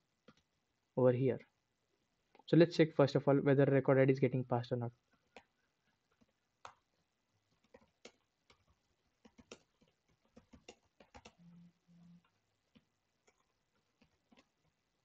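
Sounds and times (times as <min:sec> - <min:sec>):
computer keyboard typing: 0:07.5 - 0:11.6, 0:13.2 - 0:14.6.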